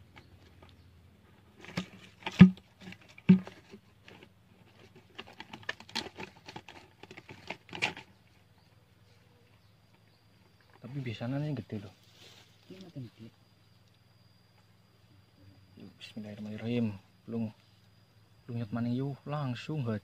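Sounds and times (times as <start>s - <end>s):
handling clicks and rustles: 0.0s - 8.7s.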